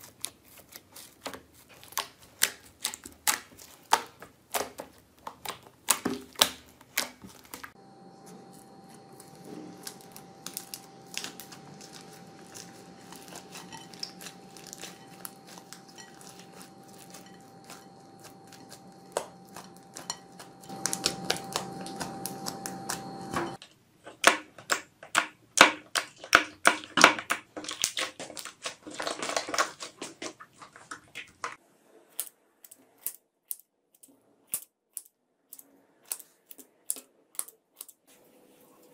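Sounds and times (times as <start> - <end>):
slime squishing: 0.0 - 7.8, 8.4 - 23.5, 25.6 - 38.1
faint steady hum: 7.7 - 23.6
slime popping and crackling: 9.1 - 23.4, 24.2 - 31.5.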